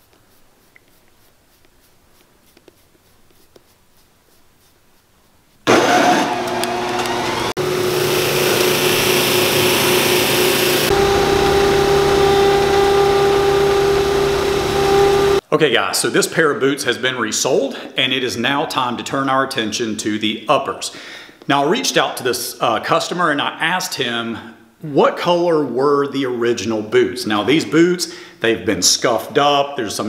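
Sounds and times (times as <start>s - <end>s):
shoe finishing machine motor hum: 5.7s - 15.4s.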